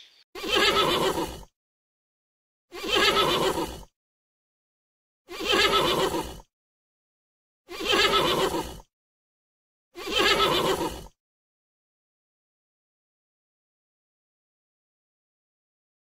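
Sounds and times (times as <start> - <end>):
horse neighing: 0.4 - 1.5, 2.7 - 3.9, 5.3 - 6.4, 7.7 - 8.8, 10.0 - 11.1.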